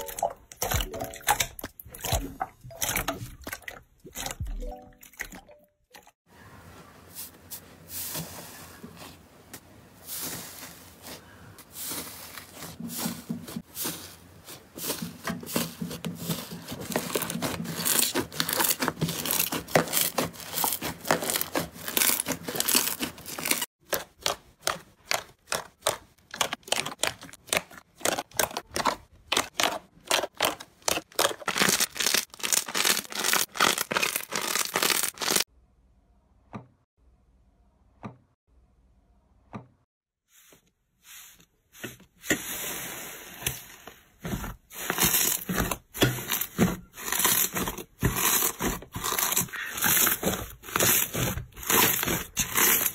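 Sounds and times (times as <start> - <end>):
hands squishing slime: 10.1 - 35.4, 44.3 - 52.9.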